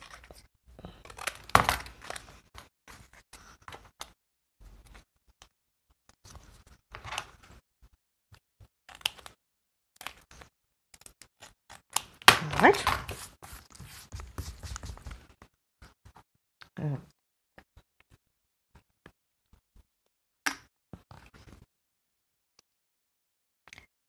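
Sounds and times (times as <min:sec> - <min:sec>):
scissors snipping paper: 0:10.0 - 0:13.3
paper rustling and tapping: 0:12.0 - 0:16.2.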